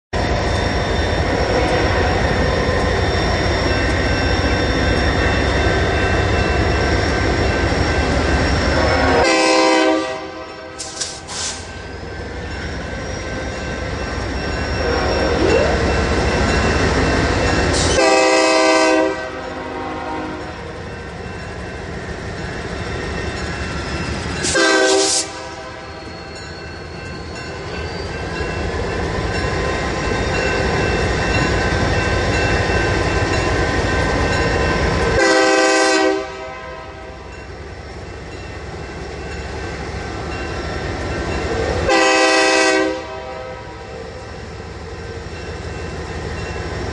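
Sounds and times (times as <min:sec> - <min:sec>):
diesel locomotive engine rumble: 0:00.1 - 0:46.9
train air horn blasts: 0:08.8 - 0:11.6, 0:14.8 - 0:15.7, 0:17.9 - 0:20.6, 0:24.4 - 0:26.0, 0:35.2 - 0:37.3, 0:41.8 - 0:43.9.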